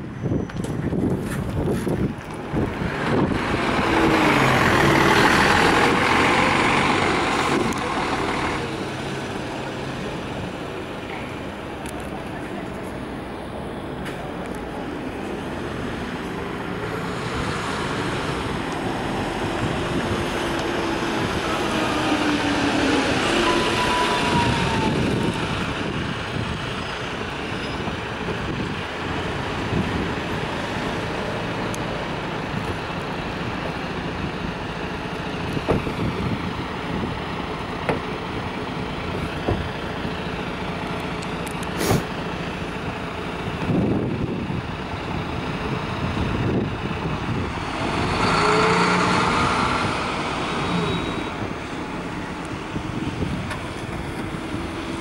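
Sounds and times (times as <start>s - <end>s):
street noise: 0.0s - 55.0s
large vehicle passing: 1.6s - 27.5s, 39.8s - 55.0s.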